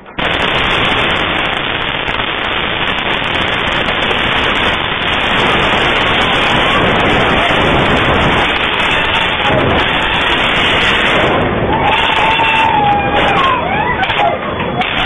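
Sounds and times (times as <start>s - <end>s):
steady rush of noise: 0.0s - 15.0s
faint voices: 6.1s - 10.1s, 11.7s - 15.0s.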